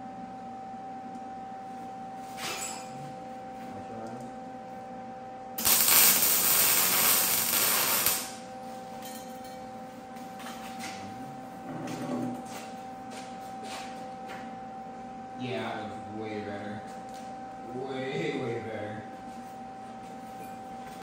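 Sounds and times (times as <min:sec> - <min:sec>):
welding arc crackling: 0:05.6 - 0:08.4.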